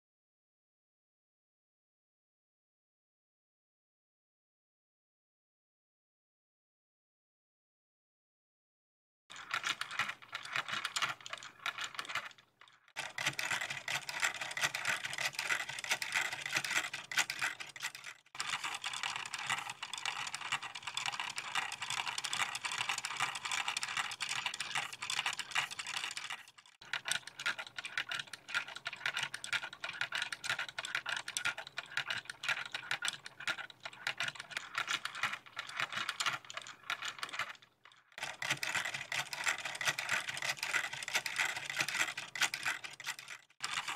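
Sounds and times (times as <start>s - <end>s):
plastic gears clicking: 9.3s - 43.9s.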